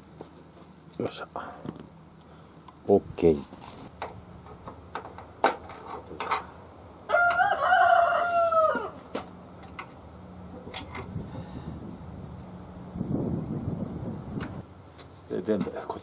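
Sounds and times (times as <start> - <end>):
rooster crowing: 7.1 - 9.1.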